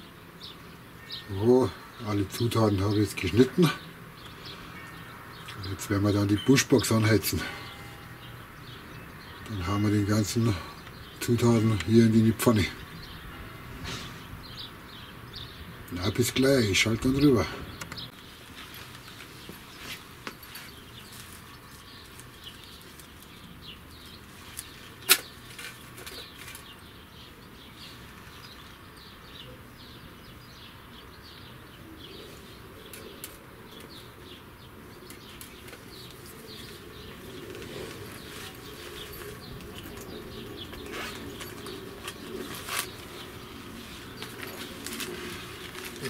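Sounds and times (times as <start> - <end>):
crumpling dry tinder: 18.2 - 26.7, 40.8 - 46.0.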